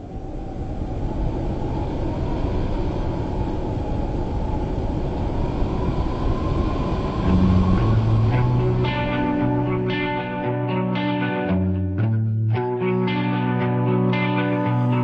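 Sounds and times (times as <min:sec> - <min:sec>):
faint rising whine: 0:00.0 - 0:11.4
low rushing rumble: 0:03.2 - 0:10.8
music with low guitar notes: 0:07.2 - 0:15.0.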